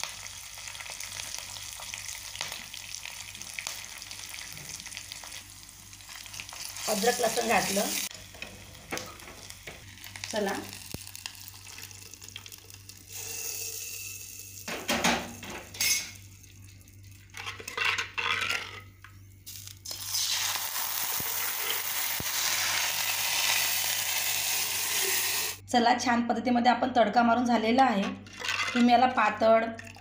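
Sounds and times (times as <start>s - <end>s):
hot oil hissing: 13.0s - 14.7s, 19.8s - 25.6s.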